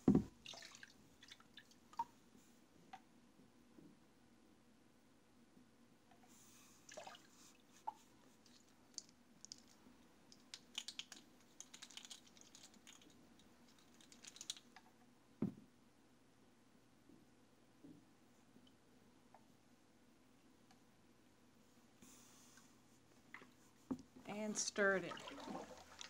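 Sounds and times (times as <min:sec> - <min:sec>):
plastic spoons clicking and rattling: 0:10.4 - 0:14.7.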